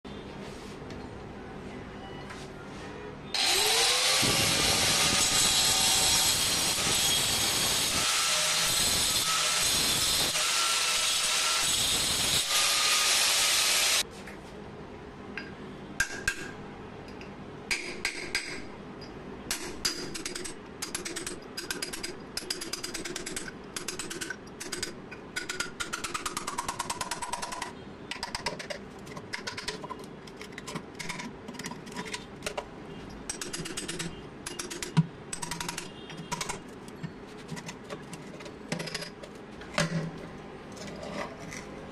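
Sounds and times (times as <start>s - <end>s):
angle grinder cutting metal: 3.4s - 14.0s.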